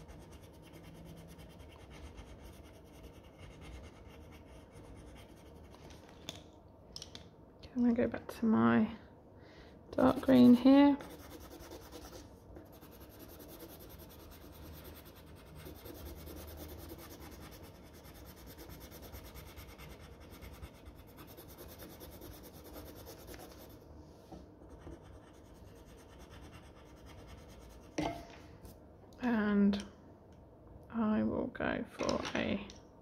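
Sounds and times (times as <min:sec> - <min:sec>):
pencil scratching on paper: 0:00.0 - 0:05.7, 0:10.1 - 0:23.8, 0:24.6 - 0:28.0.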